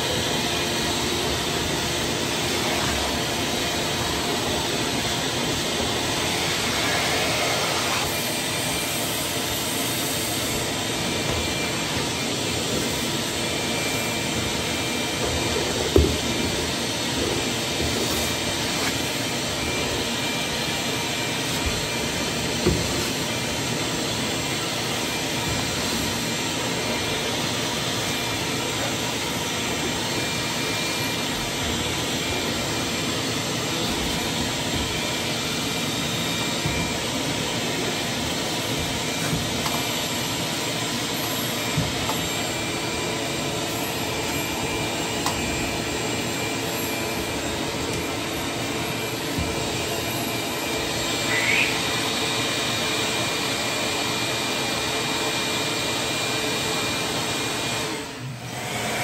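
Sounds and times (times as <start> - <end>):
shop vacuum running: 0.0 - 59.0
vacuum tool knocking on steps: 15.2 - 18.3, 22.6 - 23.2, 36.5 - 37.2, 47.2 - 49.9.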